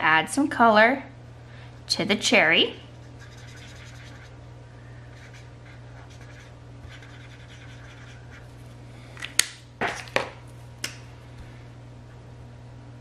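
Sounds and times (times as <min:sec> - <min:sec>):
marker scratching on paper: 0:03.1 - 0:04.4, 0:05.1 - 0:08.5.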